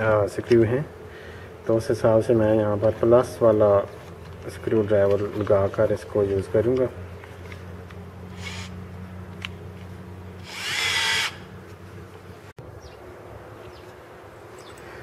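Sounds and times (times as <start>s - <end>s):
cordless drill motor whine: 8.0s - 9.5s, 10.4s - 11.6s.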